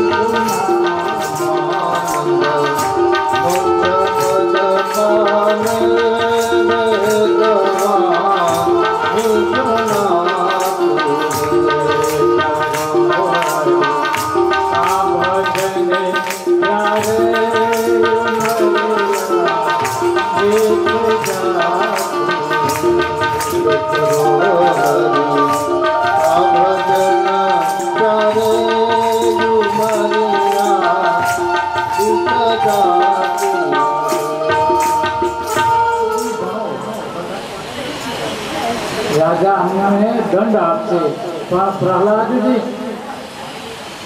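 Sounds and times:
hand drum: 0:00.0 - 0:39.2
devotional song melody: 0:00.0 - 0:43.2
hand-clapping: 0:00.5 - 0:05.0, 0:10.6 - 0:36.3.

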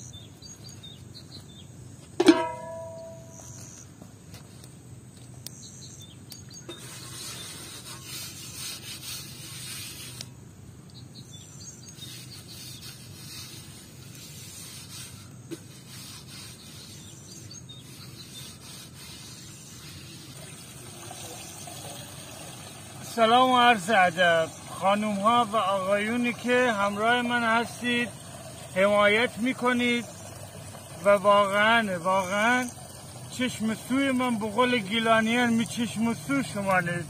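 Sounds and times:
water running into metal pot: 0:02.2 - 0:03.3, 0:20.3 - 0:37.0
rubbing against metal pot: 0:06.7 - 0:10.3, 0:12.0 - 0:21.4, 0:22.7 - 0:37.0.

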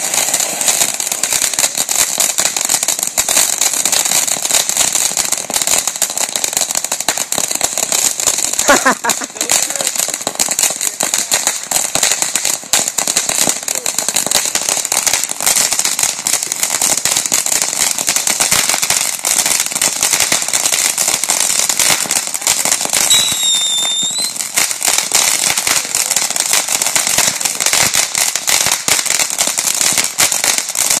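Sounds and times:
firework fountains crackling: 0:00.0 - 0:31.0
short high whistle: 0:23.1 - 0:24.3.

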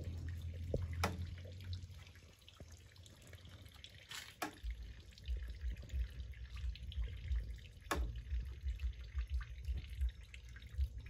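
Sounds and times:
low rumble: 0:00.0 - 0:02.8, 0:04.6 - 0:11.0
liquid dripping and trickling: 0:00.0 - 0:11.0.

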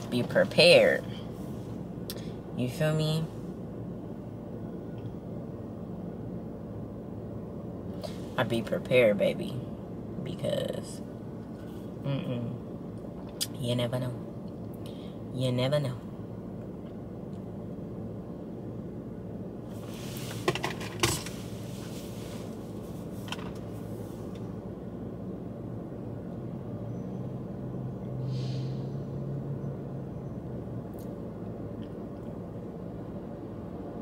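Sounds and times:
car engine idling: 0:00.0 - 0:05.9.

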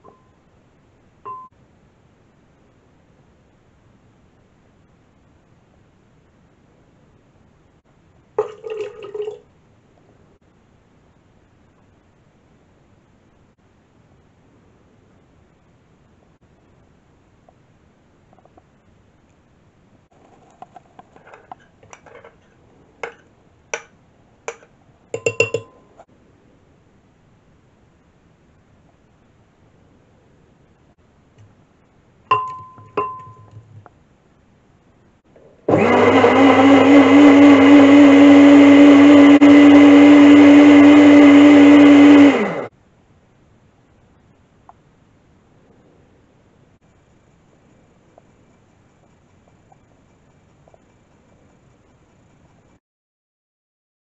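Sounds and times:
metal spoon clicking ceramic bowl: 0:24.5 - 0:25.8, 0:32.3 - 0:33.7
sharp knocks with ring: 0:25.2 - 0:25.8
jug blender running: 0:35.7 - 0:42.7.

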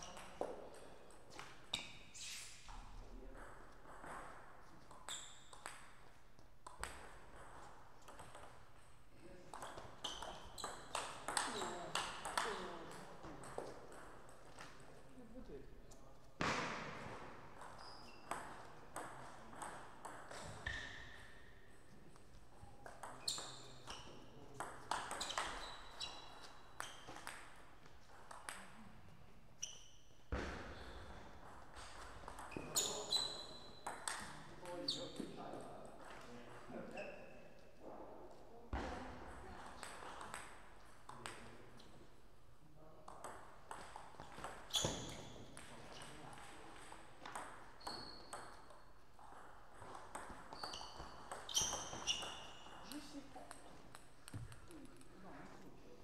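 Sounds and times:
table tennis ball hitting table and paddles: 0:00.0 - 0:02.1, 0:02.7 - 0:15.0, 0:16.4 - 0:29.0, 0:29.6 - 0:37.0, 0:38.7 - 0:42.1, 0:43.0 - 0:55.6
shoes squeaking on floor: 0:01.3 - 0:02.9, 0:04.6 - 0:05.6, 0:09.7 - 0:12.8, 0:17.6 - 0:18.8, 0:22.6 - 0:27.4, 0:29.6 - 0:35.4, 0:44.2 - 0:46.3, 0:47.4 - 0:49.0, 0:49.8 - 0:55.3.

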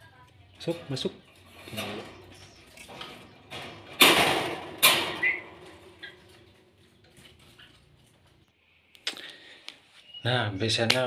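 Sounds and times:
wire cage rattling scrapes: 0:00.8 - 0:08.4.

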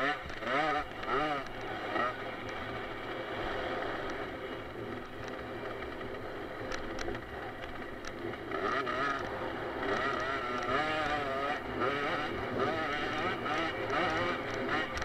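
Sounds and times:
motorcycle engine revving: 0:00.0 - 0:15.0
sharp clicks: 0:04.9 - 0:10.8.

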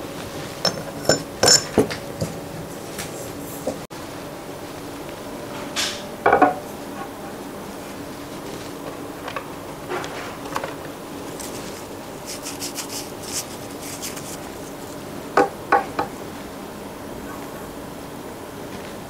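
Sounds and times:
dry rustle: 0:11.2 - 0:15.1.

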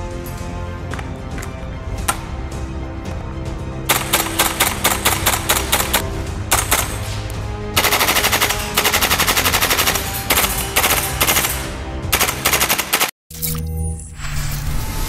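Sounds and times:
background music: 0:00.0 - 0:15.0
airsoft gun firing bursts: 0:03.9 - 0:07.1, 0:07.8 - 0:13.1.

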